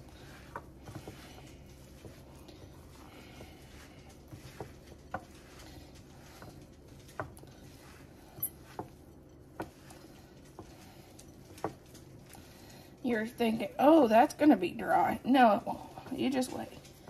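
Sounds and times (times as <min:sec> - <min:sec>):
hands kneading meat mixture: 0:00.0 - 0:17.0.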